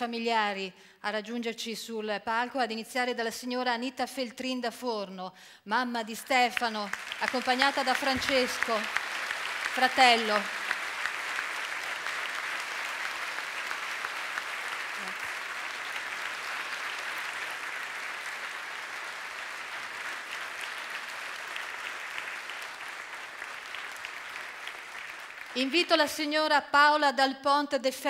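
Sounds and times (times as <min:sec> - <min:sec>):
audience applauding: 0:06.6 - 0:26.3.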